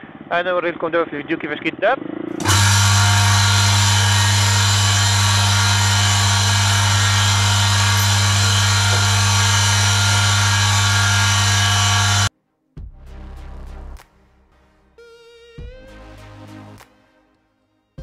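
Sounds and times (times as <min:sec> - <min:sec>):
electric motor hum: 0:02.4 - 0:12.3.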